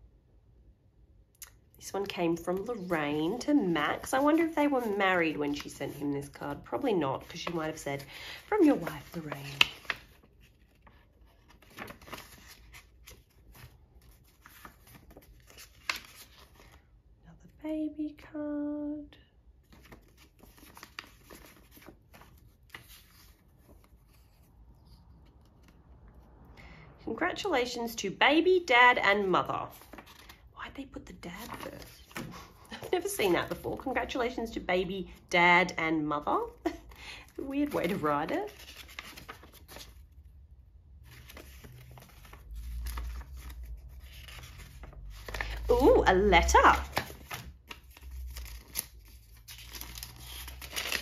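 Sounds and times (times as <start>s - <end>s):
paper cards rustling and tapping: 2.4s - 16.8s, 19.6s - 24.3s, 31.3s - 34.0s, 41.2s - 45.6s, 46.6s - 51.0s.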